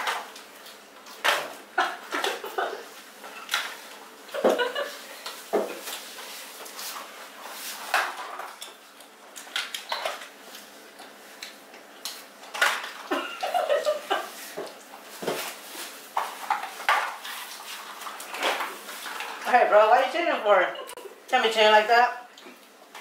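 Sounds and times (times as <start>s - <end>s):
cardboard boxes and plastic cups clattering: 14.6s - 19.5s.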